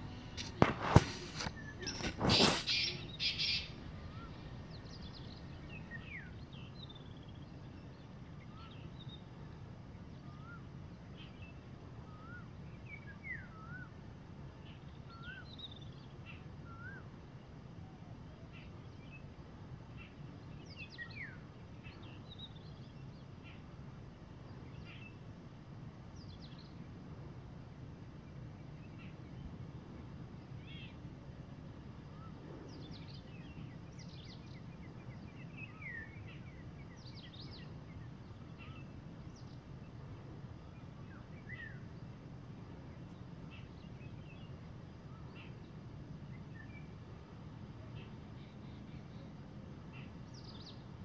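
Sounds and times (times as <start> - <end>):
birds chirping and whistling: 0.0 - 6.4
low background noise: 0.0 - 51.0.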